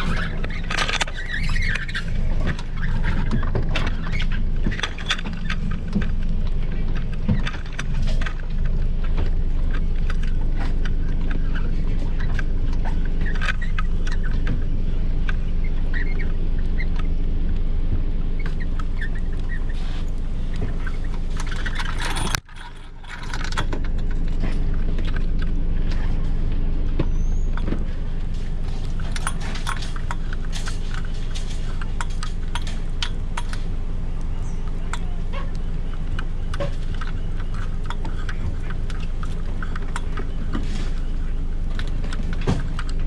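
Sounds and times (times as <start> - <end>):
clicks and knocks from hull: 0.0 - 16.4, 34.3 - 43.0
engine idling: 0.0 - 43.0.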